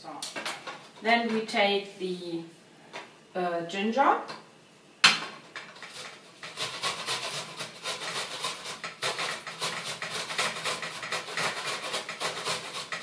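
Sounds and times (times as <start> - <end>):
ginger grating on metal grater: 5.8 - 13.0.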